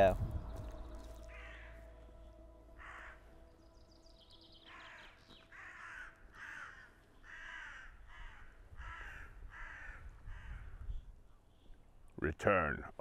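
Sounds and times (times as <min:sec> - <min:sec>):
crows cawing: 0:01.2 - 0:02.0, 0:02.7 - 0:03.5, 0:04.6 - 0:11.0.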